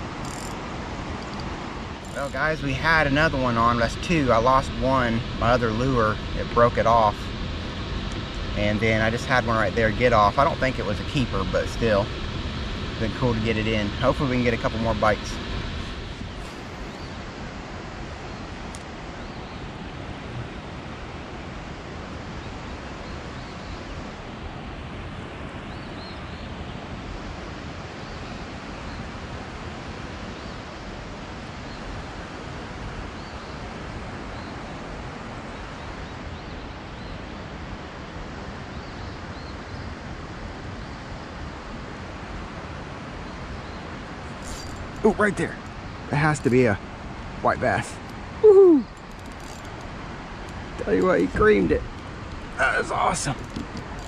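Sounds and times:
rushing water: 0:00.0 - 0:54.0.

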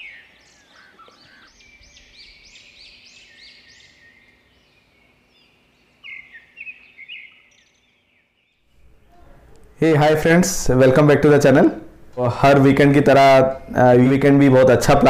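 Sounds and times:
birds singing: 0:00.0 - 0:09.7
faint steady hiss: 0:00.0 - 0:15.0.

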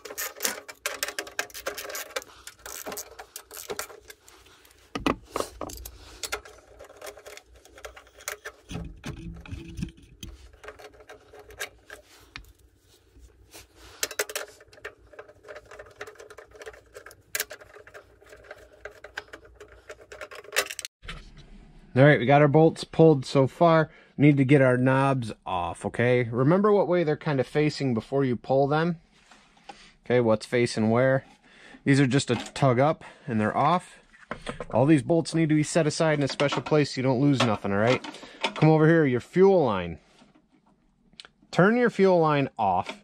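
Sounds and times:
tool and metal parts rattling: 0:00.0 - 0:20.9, 0:35.6 - 0:39.0.

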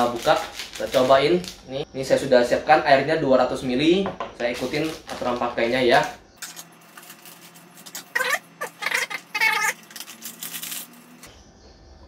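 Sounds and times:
foil sachet crinkling: 0:00.0 - 0:01.7, 0:04.5 - 0:11.3
cat crying: 0:08.1 - 0:09.8.

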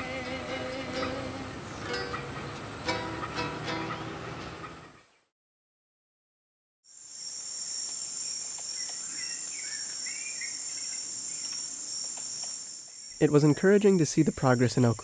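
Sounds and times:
insect chorus drone: 0:00.0 - 0:04.1, 0:06.9 - 0:15.0
faint bird chirps: 0:07.6 - 0:14.2.

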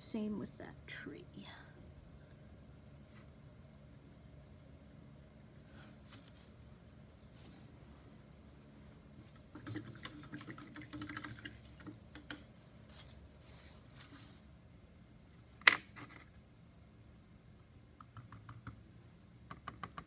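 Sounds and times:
paintbrushes clicking and tapping: 0:09.4 - 0:12.6, 0:18.0 - 0:18.8, 0:19.4 - 0:20.0.

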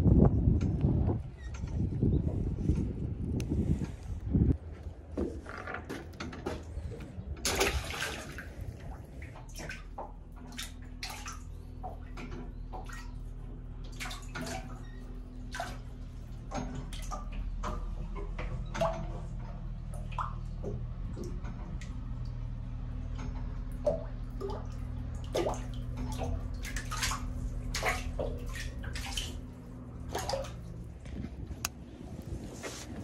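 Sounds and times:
low steady hum: 0:00.0 - 0:33.0
fish splashing into water: 0:07.4 - 0:12.1, 0:13.9 - 0:14.8, 0:15.5 - 0:16.0, 0:23.8 - 0:30.8.

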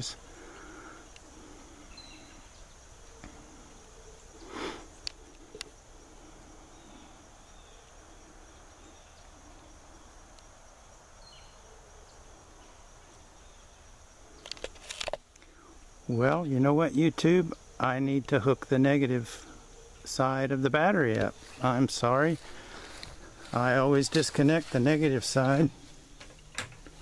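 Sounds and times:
high-pitched insect drone: 0:00.0 - 0:27.0
faint clicks: 0:05.0 - 0:05.8
brief rustle: 0:14.4 - 0:15.2.

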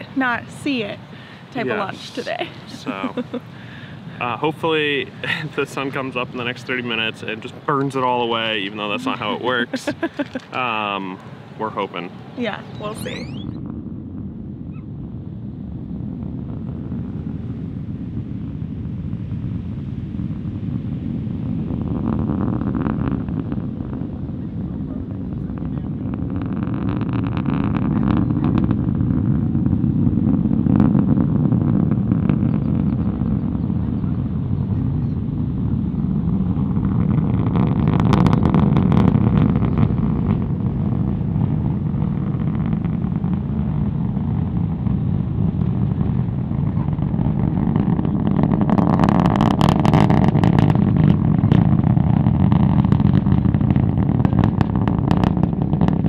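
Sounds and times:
distant rocket launch rumble: 0:00.0 - 0:56.0.

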